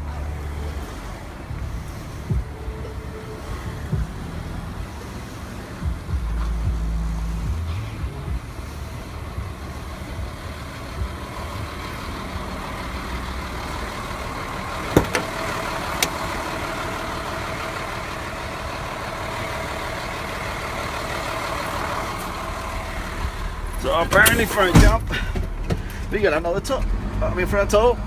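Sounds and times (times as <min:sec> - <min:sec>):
truck engine idling: 0:00.0 - 0:28.0.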